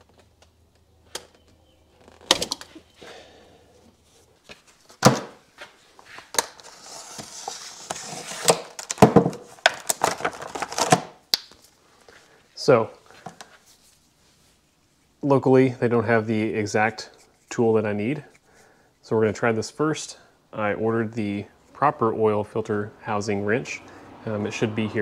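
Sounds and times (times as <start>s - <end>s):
rag scraping and rubbing: 6.0s - 8.8s.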